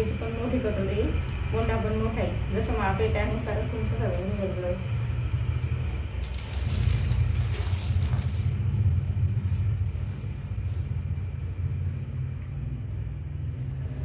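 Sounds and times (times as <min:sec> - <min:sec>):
steady low rumble: 0:00.0 - 0:14.0
newspaper rustling: 0:05.5 - 0:11.4.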